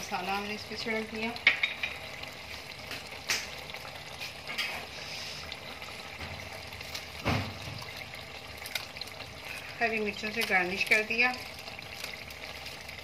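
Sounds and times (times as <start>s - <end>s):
curry bubbling in a pan: 0.0s - 13.0s
soft thump: 7.2s - 7.8s.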